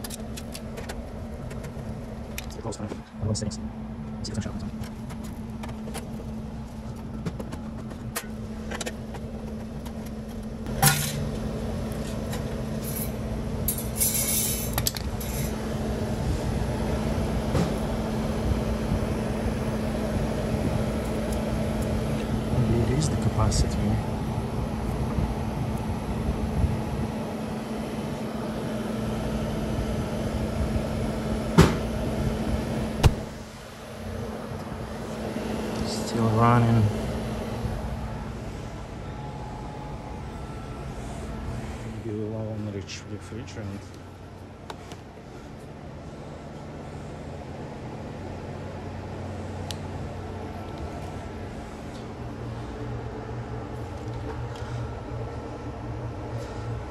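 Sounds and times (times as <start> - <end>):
freezer unit humming: 0.0 - 56.9.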